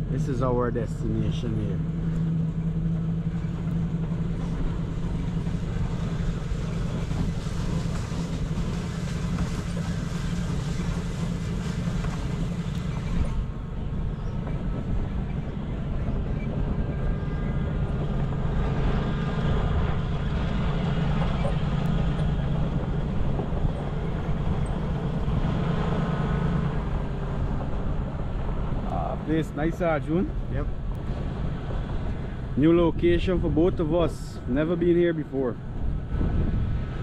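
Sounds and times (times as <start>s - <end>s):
road and rattle noise: 0.0s - 37.0s
vehicle engine hum: 0.0s - 37.0s.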